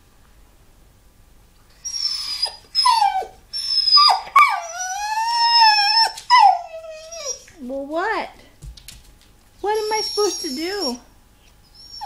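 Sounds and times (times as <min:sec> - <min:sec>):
puppy whining: 0:01.7 - 0:07.6, 0:09.6 - 0:12.0.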